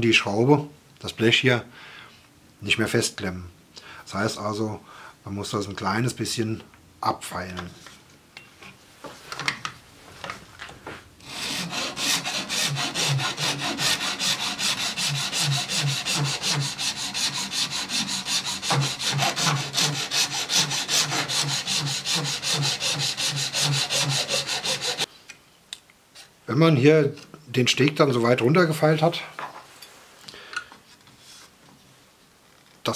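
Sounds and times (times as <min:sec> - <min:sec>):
file rasping on plastic: 0:11.2 - 0:25.1.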